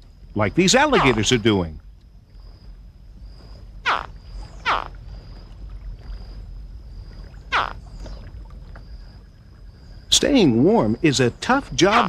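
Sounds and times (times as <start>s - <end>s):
faint steady high tone: 0.4s - 1.8s
juvenile alligators chirping: 0.6s - 1.5s, 3.8s - 4.9s, 7.4s - 7.9s, 11.2s - 12.0s.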